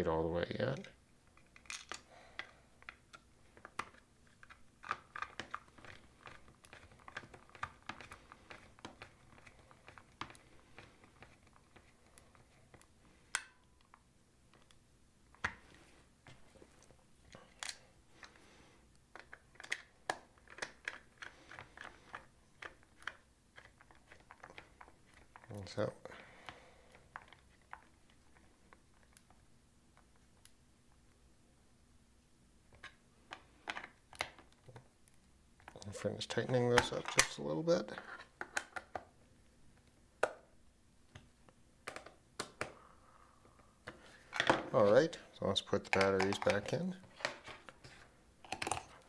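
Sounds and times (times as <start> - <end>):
hands handling plastic housing: 43.8 - 49.0.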